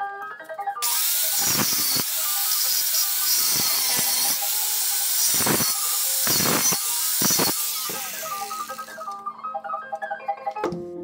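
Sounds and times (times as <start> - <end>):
angle grinder cutting steel: 0.8 - 9.2.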